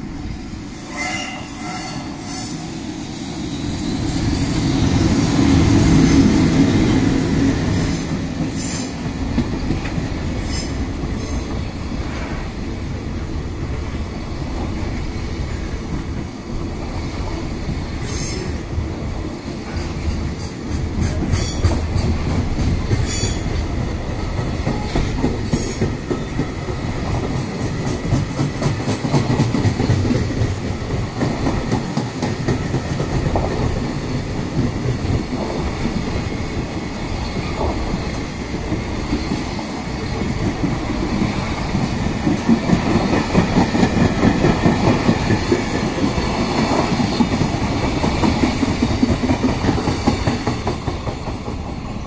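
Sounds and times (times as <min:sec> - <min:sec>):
train wheels clattering over rail joints: 0:19.6 - 0:35.9, 0:40.3 - 0:51.8.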